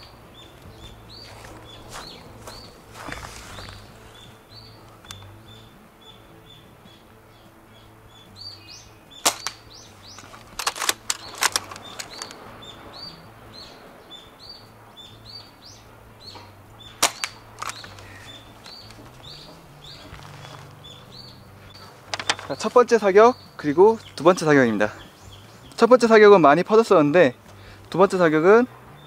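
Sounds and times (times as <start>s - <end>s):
faint bird or insect chirp: 0.0s - 10.4s, 11.1s - 25.9s
airsoft rifle snaps: 9.2s - 12.4s, 17.0s - 19.1s.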